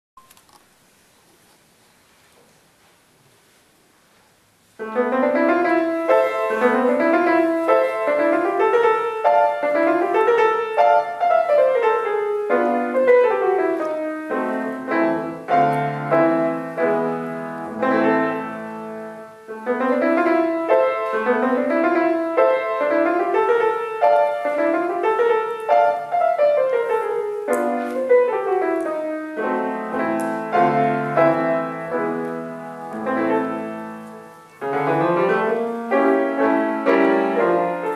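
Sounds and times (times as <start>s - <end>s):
grand piano playing fast runs: 4.8s - 37.9s.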